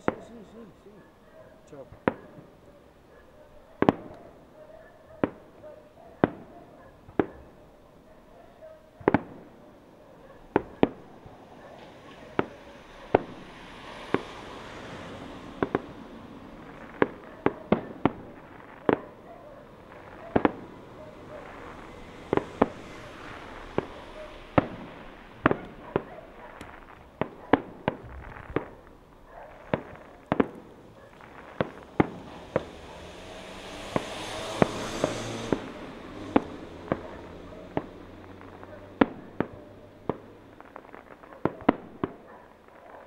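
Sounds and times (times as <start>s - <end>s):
fireworks bursting in bangs: 9.0s - 9.6s, 15.0s - 42.3s
fireworks hissing and crackling: 10.4s - 42.9s.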